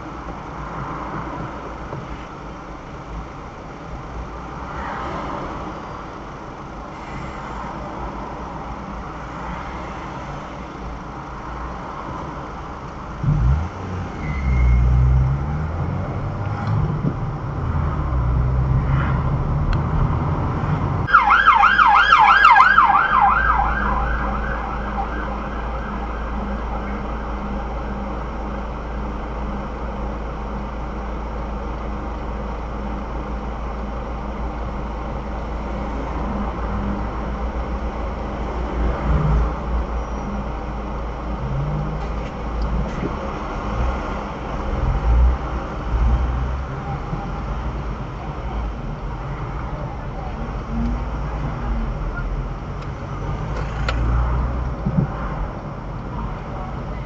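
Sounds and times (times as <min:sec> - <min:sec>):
car road and engine rumble: 0:00.0 - 0:57.0
siren yelping: 0:21.1 - 0:27.3.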